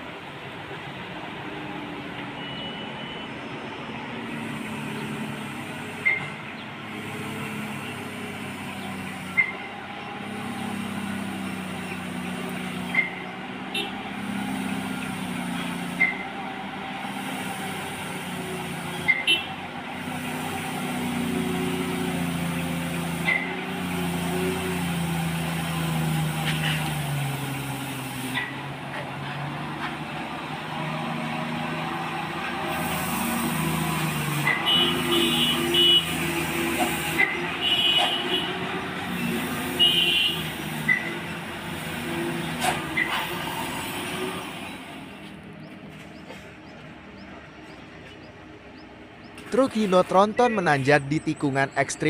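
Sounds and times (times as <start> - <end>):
heavy truck diesel engines: 0.0 - 52.0.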